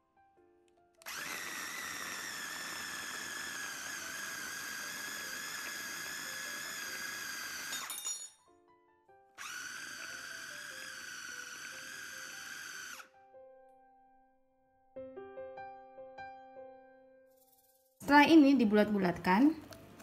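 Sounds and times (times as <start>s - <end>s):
electric food chopper whining: 1.0s - 7.9s, 9.4s - 13.2s.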